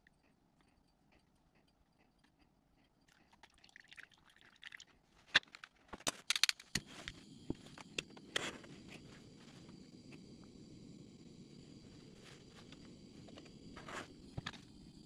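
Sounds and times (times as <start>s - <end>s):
faint hiss with high tones: 6.8s - 15.0s.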